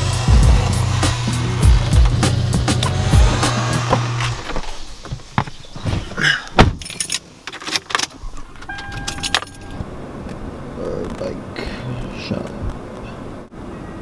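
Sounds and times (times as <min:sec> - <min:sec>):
car door thump: 0:03.8 - 0:06.9
keys jangling: 0:06.8 - 0:07.9, 0:08.7 - 0:09.8
car electronic chime: 0:08.7 - 0:09.8.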